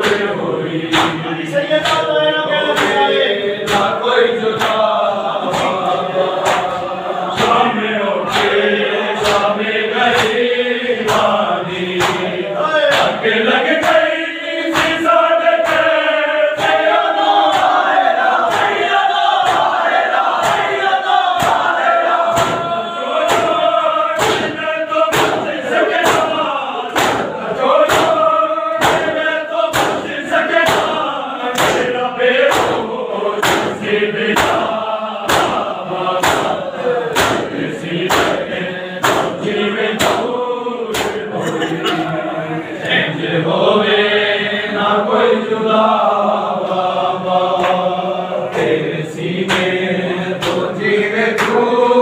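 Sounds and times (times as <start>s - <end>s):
men chanting in unison: 0.0s - 52.0s
hands slapping chests: 0.9s - 1.2s, 1.8s - 2.1s, 2.8s - 4.0s, 4.6s - 10.4s, 11.0s - 40.3s, 40.9s - 42.0s, 47.5s - 47.9s, 49.4s - 49.8s, 50.4s - 51.7s.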